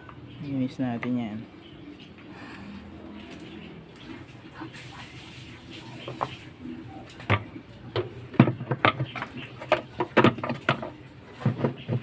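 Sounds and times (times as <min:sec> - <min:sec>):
plastic knocks and clunks: 0:07.2 - 0:12.0.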